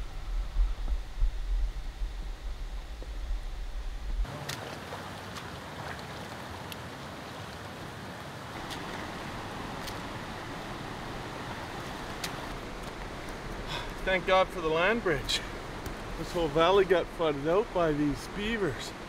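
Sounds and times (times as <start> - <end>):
low rumble: 0.0 - 4.2.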